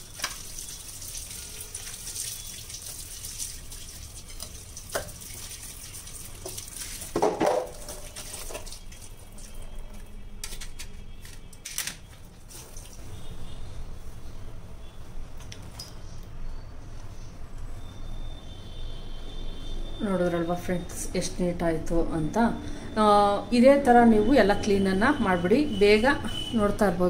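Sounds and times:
tap water splashing on metal: 0.0 - 10.6.

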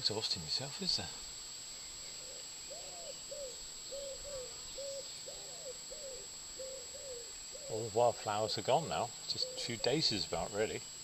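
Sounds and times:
wood pigeon cooing: 2.2 - 10.5.

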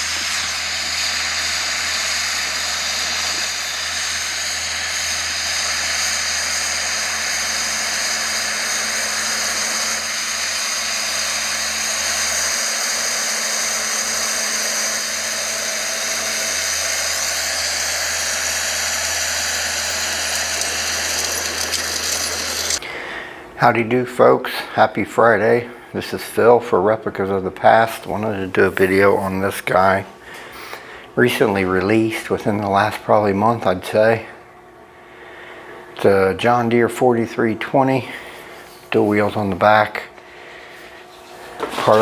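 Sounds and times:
machine hissing and humming: 0.0 - 22.9.

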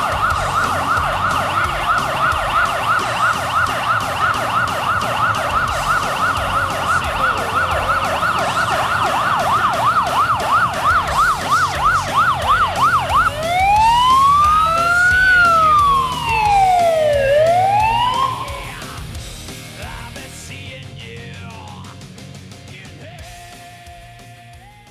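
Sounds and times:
police siren yelp and wail: 0.0 - 19.1.

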